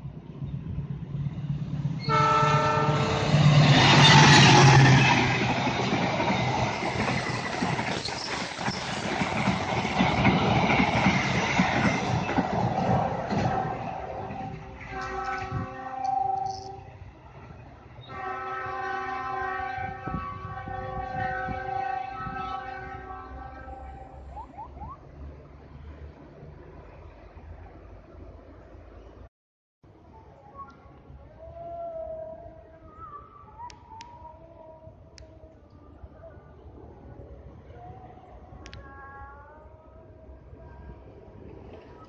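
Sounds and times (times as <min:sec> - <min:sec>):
train rushing past: 0:00.0 - 0:29.0
locomotive horn: 0:02.0 - 0:04.9, 0:13.4 - 0:16.9, 0:18.0 - 0:24.3.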